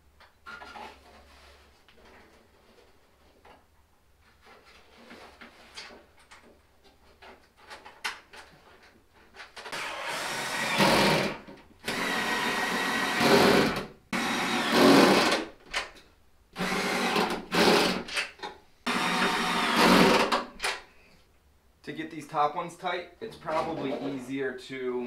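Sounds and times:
cordless power tool running: 0:09.7 - 0:15.4, 0:18.9 - 0:20.4.

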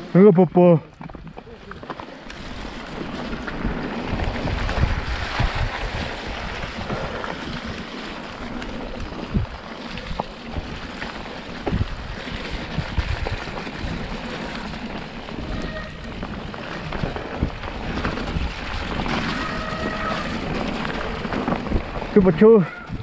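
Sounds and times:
bike knocking over bumps: 0:01.0 - 0:22.2
wind rushing over microphone: 0:02.4 - 0:07.8, 0:08.9 - 0:23.0.

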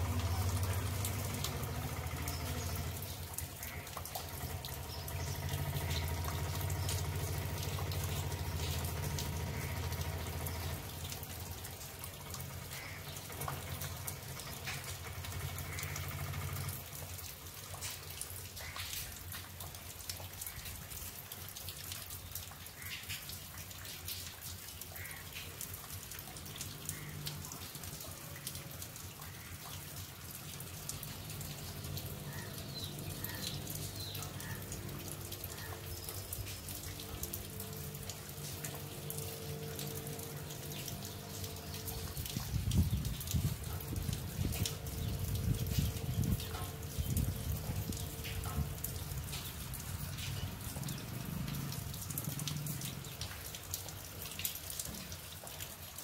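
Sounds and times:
light rain with drips: 0:00.0 - 0:56.0
rainwater trickling: 0:00.0 - 0:56.0.

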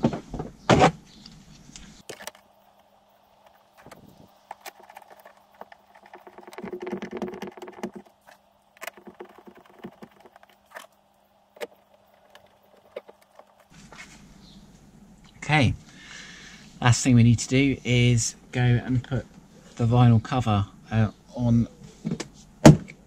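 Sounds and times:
plastic rubbing: 0:03.5 - 0:10.9, 0:11.6 - 0:14.3
plastic clicks and knocks: 0:03.8 - 0:08.1, 0:08.8 - 0:10.6.

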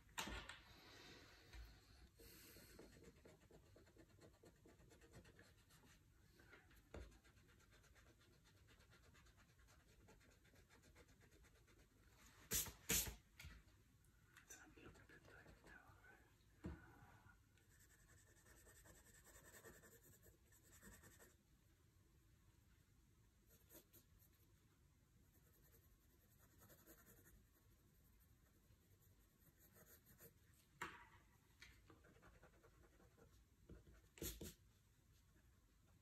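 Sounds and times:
pencil scratching on paper: 0:02.5 - 0:06.0, 0:06.8 - 0:11.9, 0:17.7 - 0:21.4, 0:23.5 - 0:24.5, 0:25.2 - 0:30.4, 0:32.0 - 0:34.6.

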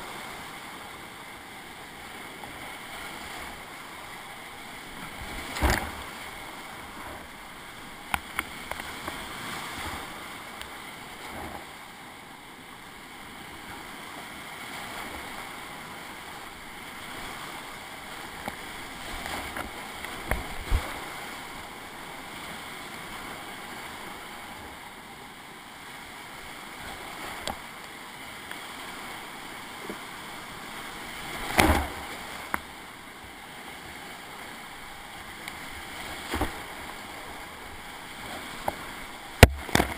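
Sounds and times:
waves hitting boat: 0:00.0 - 0:39.9
paddle strokes splashing: 0:01.8 - 0:11.8, 0:13.5 - 0:24.6, 0:26.3 - 0:39.9
whitewater rapids rushing: 0:25.8 - 0:39.9.

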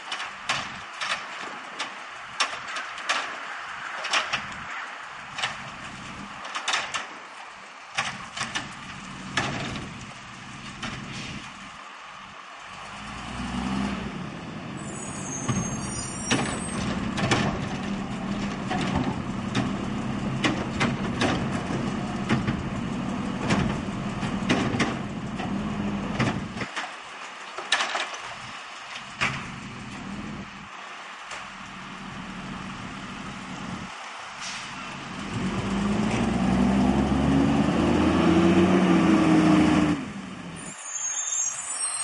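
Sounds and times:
truck body clanking and rattling: 0:00.0 - 0:03.4, 0:04.0 - 0:04.6, 0:05.3 - 0:07.2, 0:07.9 - 0:11.6, 0:15.4 - 0:30.4
diesel engine revving: 0:08.0 - 0:26.7, 0:28.2 - 0:40.7.

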